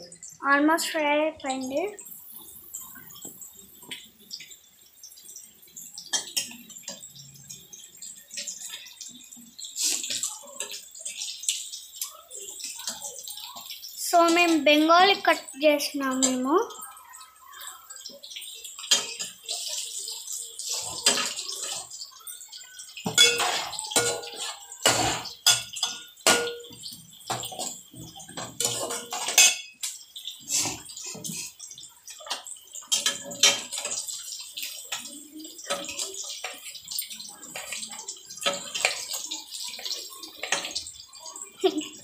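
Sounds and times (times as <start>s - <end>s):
fish sizzling in oil: 0.0s - 42.0s.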